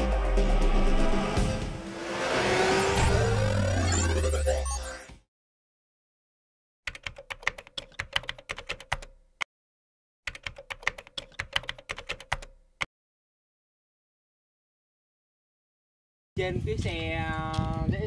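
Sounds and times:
keyboard typing clicks: 0:06.9 - 0:09.2, 0:10.3 - 0:12.6.

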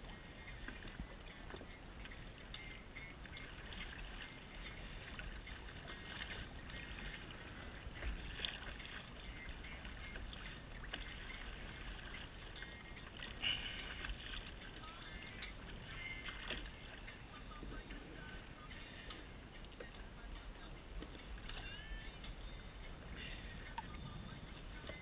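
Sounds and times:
water trickling off rope: 0:00.6 - 0:20.0.

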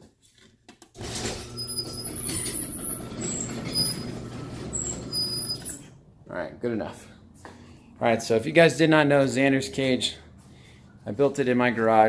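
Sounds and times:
high roller squeaks: 0:01.1 - 0:05.9.

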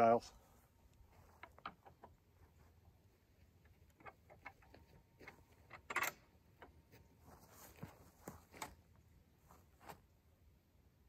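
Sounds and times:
crossbow handling clicks and knocks: 0:00.9 - 0:02.6, 0:03.6 - 0:07.0.

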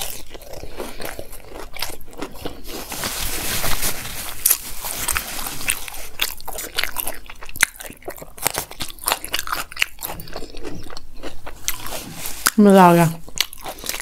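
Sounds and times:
crunchy chewing: 0:00.0 - 0:12.6, 0:13.2 - 0:14.0.

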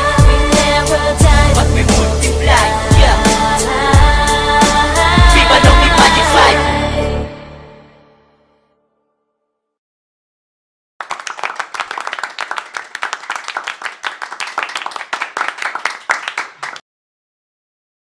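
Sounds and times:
many hands clapping: 0:11.0 - 0:16.8.

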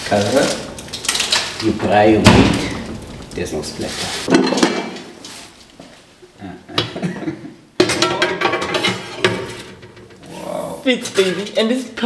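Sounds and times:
loud knock: 0:02.2 - 0:03.1.

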